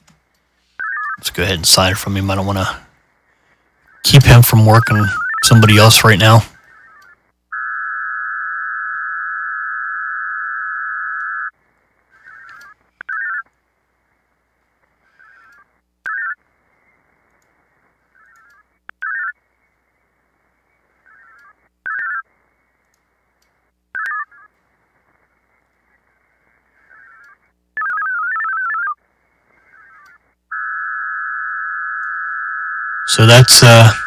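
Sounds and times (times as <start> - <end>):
short data bursts: 0.8 - 34.0
buzzing data tone: 4.1 - 11.5, 29.9 - 34.0
faint receiver hiss: 33.1 - 34.0.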